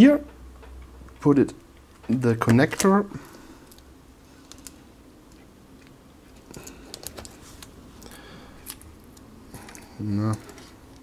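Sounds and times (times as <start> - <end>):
fingers handling a cable: 0.7 - 11.0.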